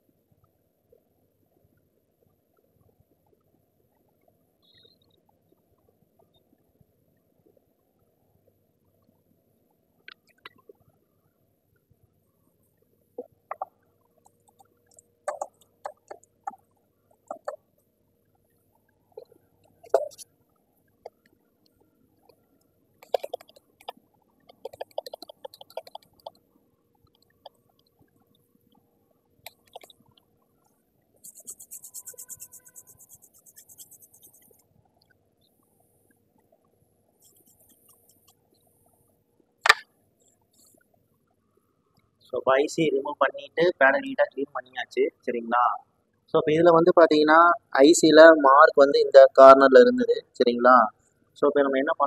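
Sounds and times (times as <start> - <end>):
faint ticks: 12.7 - 26.4.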